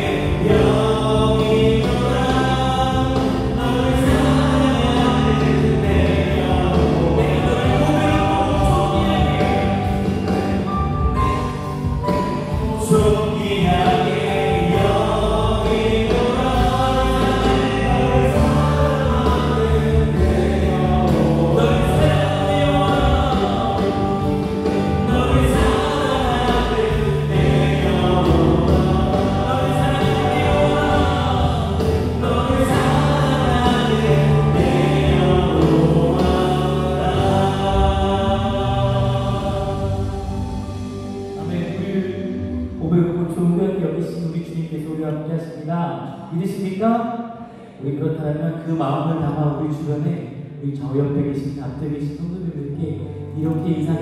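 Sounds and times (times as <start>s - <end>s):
drums: 0.0s - 43.1s
bass guitar: 0.0s - 43.6s
voices singing: 0.0s - 43.9s
keyboards: 0.0s - 54.0s.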